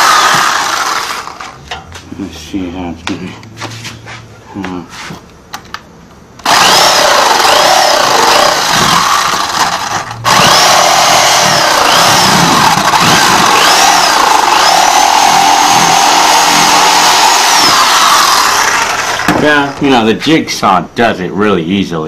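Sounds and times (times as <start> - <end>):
electric jigsaw cutting wood: 0.0 - 1.5, 6.4 - 19.7.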